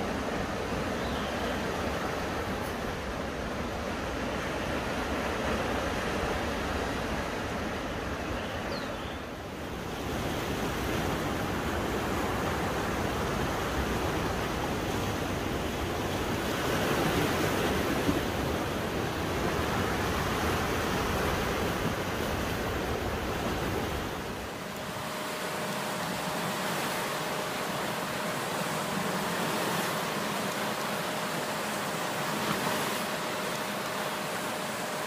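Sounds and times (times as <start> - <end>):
sea waves breaking on rocks: 9.6 - 35.0.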